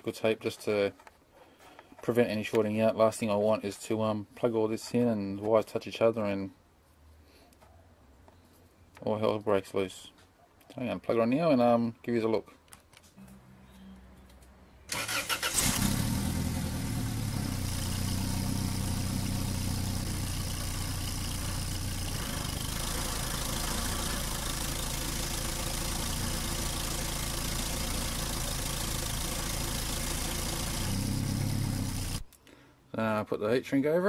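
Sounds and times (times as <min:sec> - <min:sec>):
van engine idling: 0:14.9 - 0:32.3.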